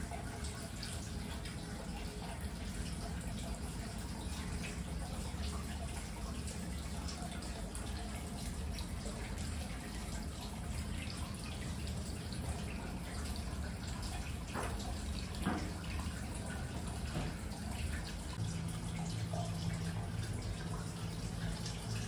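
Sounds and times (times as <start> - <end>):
small splashes and drips: 0.0 - 22.0
water trickling into a bathtub: 0.0 - 22.0.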